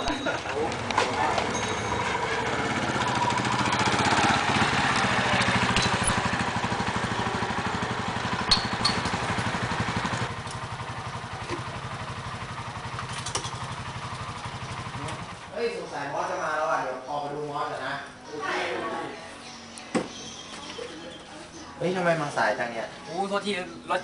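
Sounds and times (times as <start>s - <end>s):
small motorcycle engine idling: 0.0s - 17.4s.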